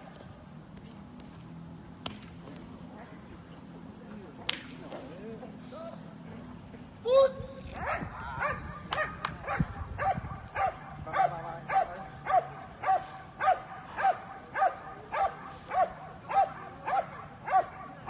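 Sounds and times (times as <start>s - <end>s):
dog barking: 7.8s - 18.0s.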